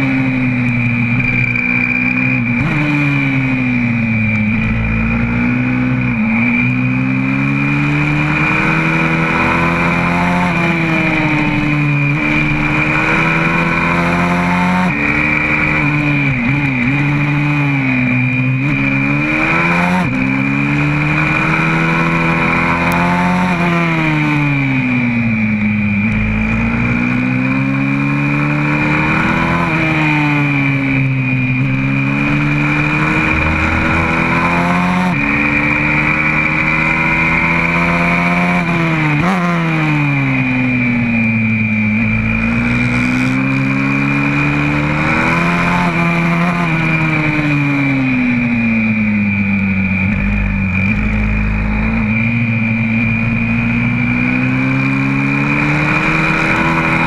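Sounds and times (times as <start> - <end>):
motorbike engine at racing speed: 0.0 - 57.0.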